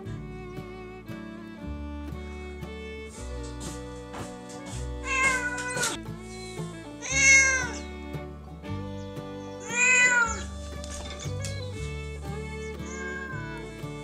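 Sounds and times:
background music: 0.0 - 14.0
cat meowing: 4.6 - 6.0, 7.0 - 7.9, 9.6 - 11.8, 12.8 - 13.6.

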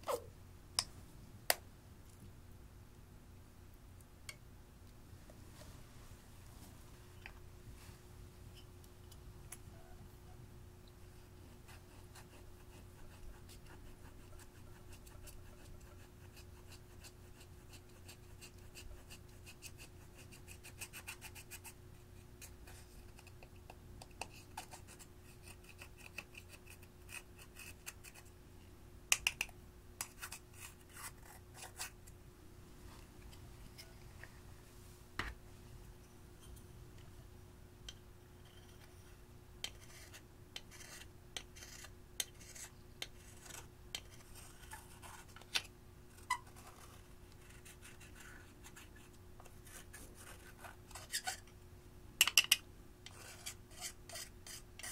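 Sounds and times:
metal spatula scraping powder: 38.3 - 45.4, 53.1 - 54.9.

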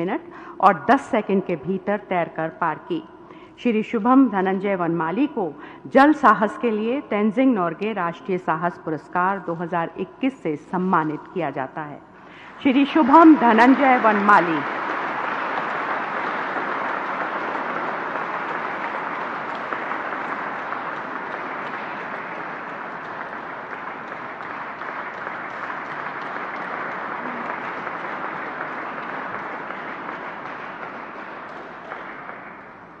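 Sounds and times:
audience applauding: 13.0 - 33.0.

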